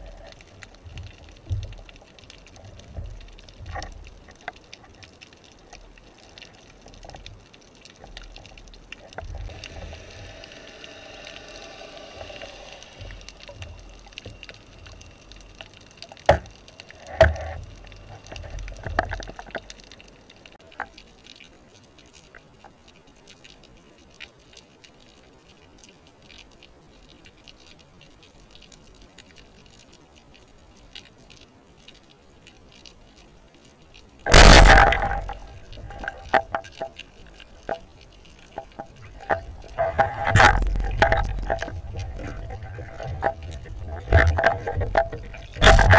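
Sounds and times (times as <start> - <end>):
faint underwater clicks: 0.0 - 45.9
speargun firing underwater: 34.3 - 36.4.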